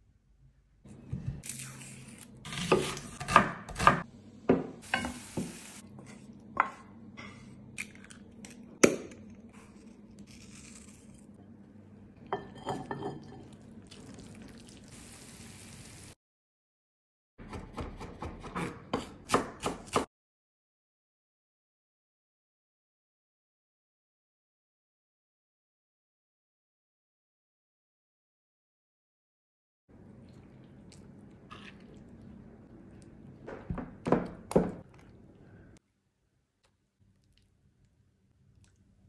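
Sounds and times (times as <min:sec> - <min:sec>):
hiss: 0:04.8 - 0:05.8
bowls and utensils clinking: 0:12.2 - 0:14.0
chopping: 0:17.4 - 0:20.1.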